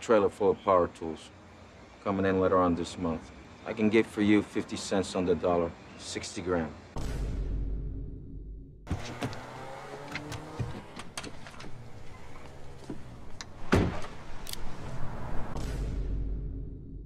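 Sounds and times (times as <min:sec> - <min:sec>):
loud thump: 0:07.0 - 0:07.8, 0:13.6 - 0:14.2, 0:15.5 - 0:16.5.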